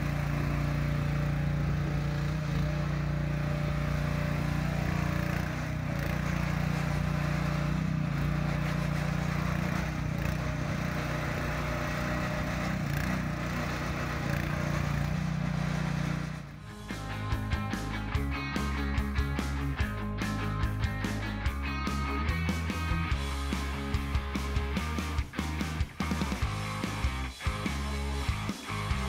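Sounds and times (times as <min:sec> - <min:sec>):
hydraulic boom working: 0:00.0 - 0:18.2
excavator engine running: 0:00.0 - 0:29.0.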